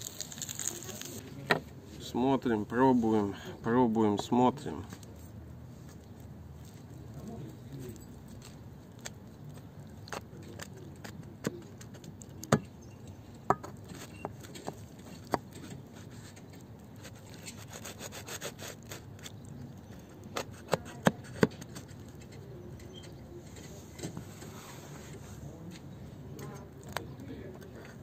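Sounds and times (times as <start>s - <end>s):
knife sawing through pizza crust: 17.0s - 19.2s.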